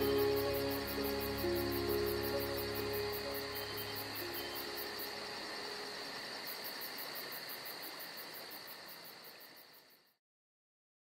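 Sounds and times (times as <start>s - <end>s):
high pulsing chirp: 0.0s - 5.4s
crickets trilling: 0.0s - 10.2s.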